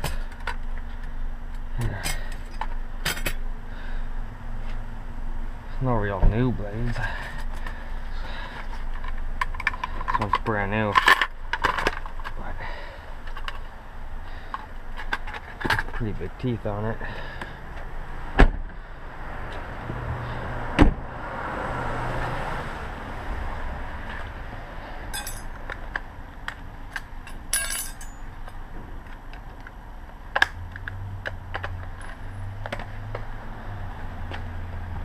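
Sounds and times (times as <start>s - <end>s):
low steady hum: 0.0s - 20.5s, 23.1s - 35.0s
light metallic clinks: 25.1s - 25.6s, 27.3s - 28.3s.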